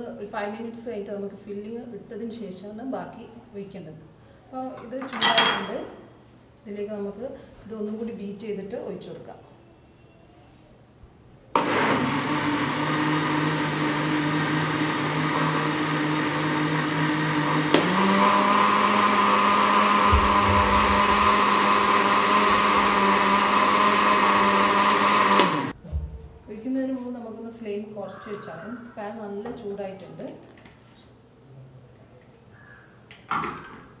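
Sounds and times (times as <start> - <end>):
blender motor running: 11.6 - 25.8.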